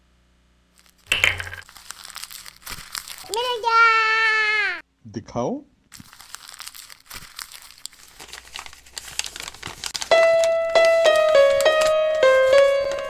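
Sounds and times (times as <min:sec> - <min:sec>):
paper crinkling: 0:00.8 - 0:03.8, 0:05.9 - 0:13.0
slow piano melody: 0:10.0 - 0:13.0.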